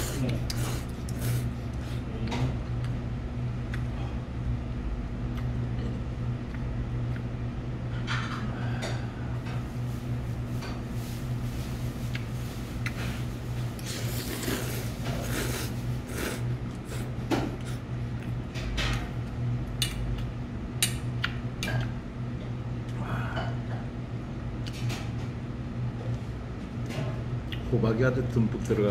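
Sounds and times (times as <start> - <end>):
man slurping noodles: 13.8 - 17.1.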